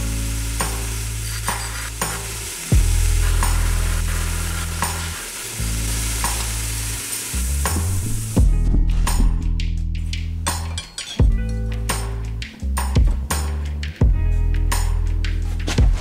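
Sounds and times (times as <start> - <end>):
background music: 0.0 - 16.0
belt sander grinding metal pipe: 0.6 - 7.4.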